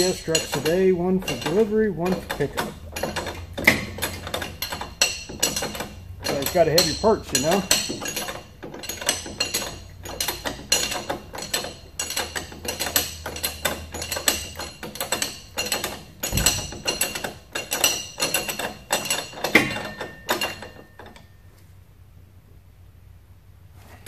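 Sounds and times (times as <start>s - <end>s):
ratchet wrench clicking: 0.0s - 20.7s
dull thump: 16.3s - 16.9s.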